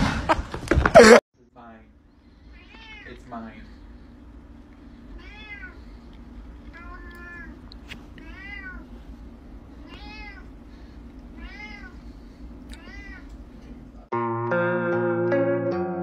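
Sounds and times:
music: 0:14.1 - 0:16.0.

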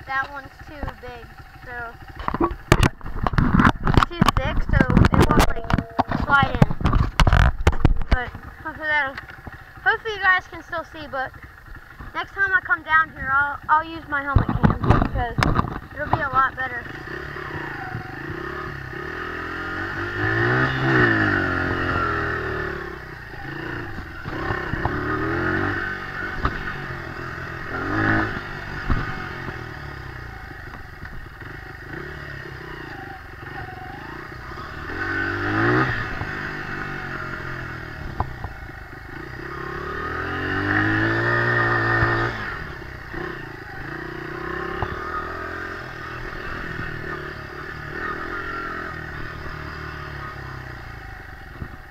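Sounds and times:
dirt bike engine revving: 0:00.0 - 0:51.9
knocks and rattles: 0:02.1 - 0:08.5, 0:14.3 - 0:16.5.

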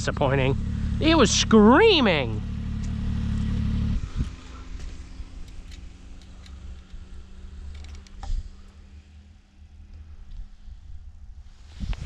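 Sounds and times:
snowmobile engine idling: 0:00.0 - 0:11.8.

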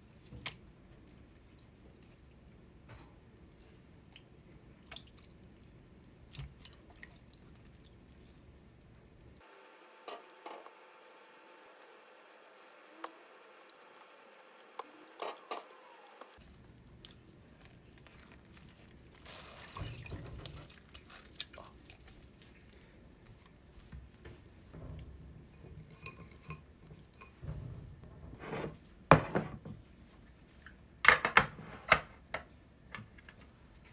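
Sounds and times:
water splashing and dripping: 0:03.5 - 0:09.4, 0:11.9 - 0:23.6.

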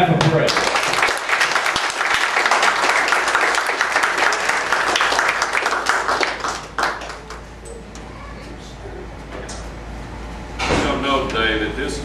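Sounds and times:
crowd applauding: 0:00.1 - 0:07.6.

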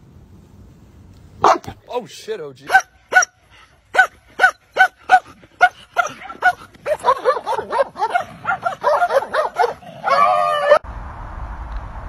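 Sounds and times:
dog barking sharply: 0:01.4 - 0:01.8, 0:02.7 - 0:09.8.

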